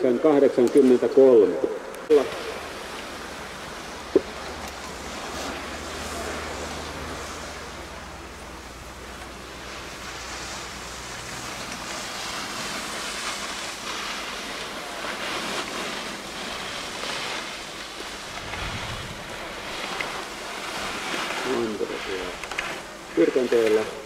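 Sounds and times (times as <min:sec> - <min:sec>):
skis scraping on hard snow: 0:04.8 - 0:07.9, 0:09.1 - 0:24.0.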